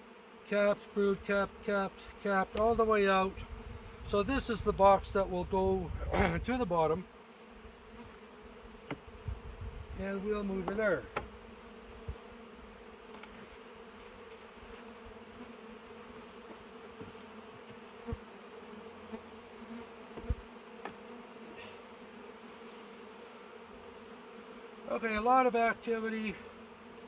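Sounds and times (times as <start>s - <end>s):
honey bees buzzing: 0.0s - 27.0s
wooden hive boxes knocking: 8.8s - 9.4s, 10.3s - 11.4s, 16.4s - 18.3s, 20.1s - 21.1s.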